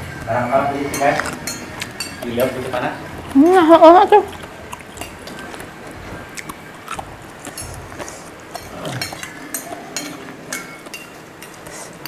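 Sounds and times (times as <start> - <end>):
spoons clinking on plates: 0.1 - 3.3, 7.5 - 12.0
quiet chewing: 0.9 - 12.0.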